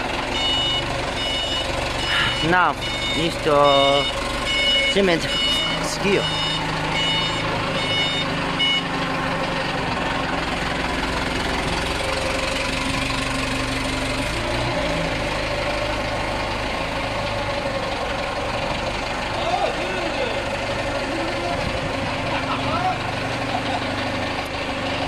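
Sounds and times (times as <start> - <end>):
forklift engine running: 0.0 - 25.0
warning beeper short beeps: 0.4 - 8.9.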